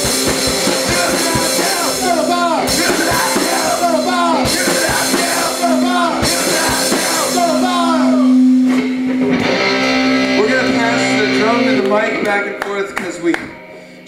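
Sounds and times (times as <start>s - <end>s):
drums hitting: 0.0s - 10.0s
rock band playing: 0.0s - 14.0s.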